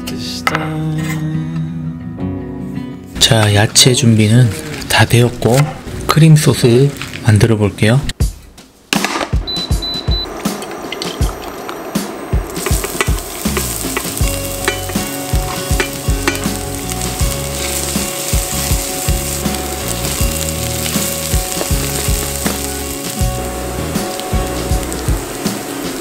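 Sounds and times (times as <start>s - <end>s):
shallots sizzling in oil: 12.5s - 26.0s.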